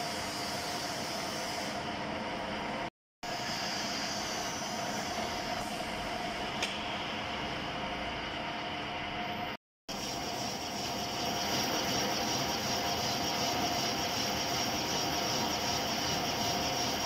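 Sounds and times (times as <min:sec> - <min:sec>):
metal lathe cutting: 0:09.9 - 0:17.0.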